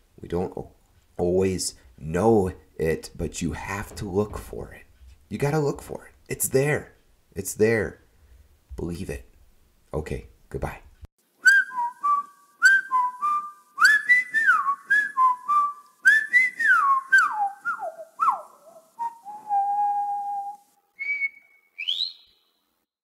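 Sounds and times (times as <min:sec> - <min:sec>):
person whistling tune: 0:11.4 - 0:22.4.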